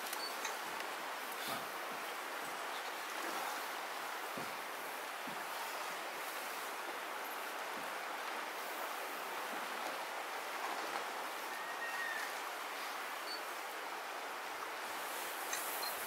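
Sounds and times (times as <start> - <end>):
river water running over stones: 0.0 - 16.0.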